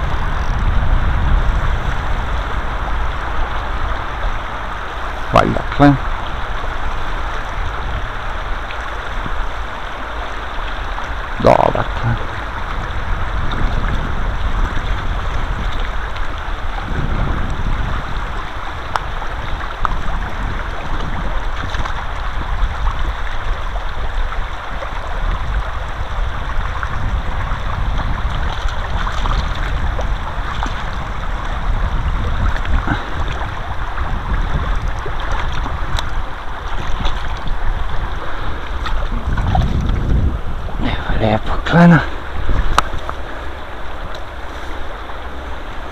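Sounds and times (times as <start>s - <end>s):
river water rushing: 0.0s - 45.9s
wind rumbling on microphone: 0.0s - 45.9s.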